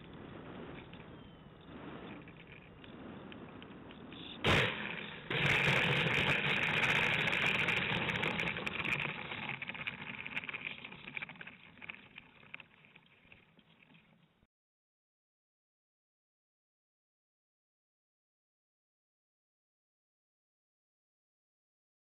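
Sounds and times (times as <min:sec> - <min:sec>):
wheels rattling over gravel: 0:00.0 - 0:14.4.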